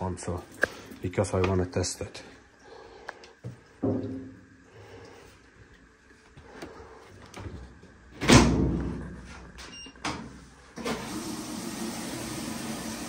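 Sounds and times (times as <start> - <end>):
water filling hiss: 0.0 - 3.8, 10.8 - 13.0.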